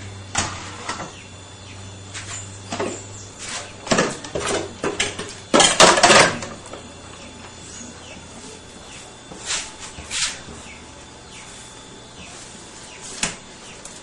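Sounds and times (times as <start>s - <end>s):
kitchenware clattering: 3.9s - 6.5s.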